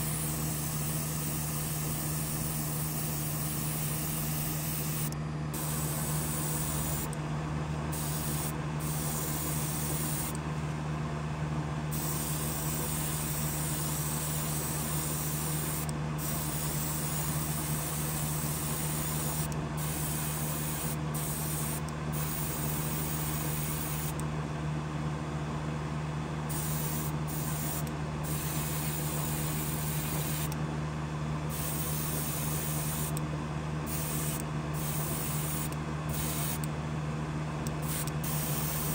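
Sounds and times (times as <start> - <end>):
airbrush hissing: 0.0 - 7.1, 7.9 - 10.4, 11.9 - 24.1, 26.5 - 30.5, 31.5 - 33.2, 33.9 - 36.6, 37.8 - 38.9
air compressor humming: 0.0 - 10.7, 11.9 - 24.2, 26.5 - 30.6, 31.4 - 38.9.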